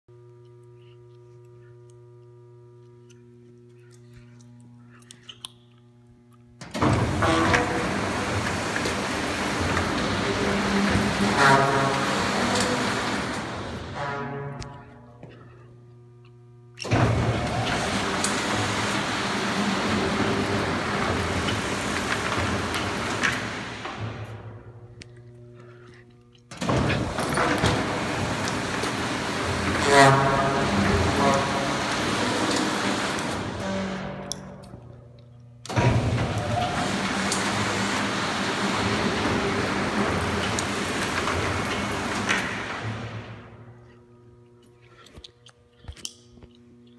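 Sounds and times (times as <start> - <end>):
electrical mains hum: 0.1 - 46.9
shop machinery rushing noise: 6.6 - 15.6, 16.8 - 25.0, 26.5 - 34.9, 35.6 - 43.8.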